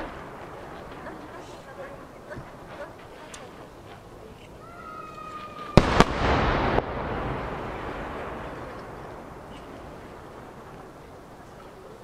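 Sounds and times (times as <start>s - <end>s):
firework shells booming: 0.0s - 3.1s, 5.3s - 11.5s
rolling rumble of echo: 0.0s - 5.0s, 5.7s - 12.0s.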